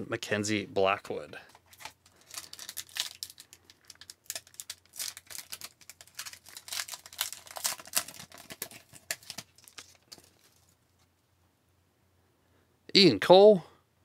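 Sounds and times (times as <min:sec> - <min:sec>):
foil wrappers crinkling: 0:01.6 - 0:10.8.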